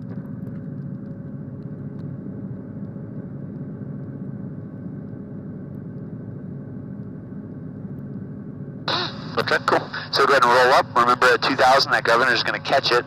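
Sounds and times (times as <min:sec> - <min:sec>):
helicopter engine and rotor drone: 0:08.6 - 0:13.0.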